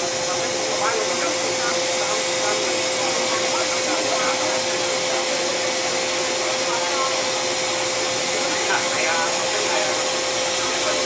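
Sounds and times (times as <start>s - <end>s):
compressed air hissing: 0.0s - 11.0s.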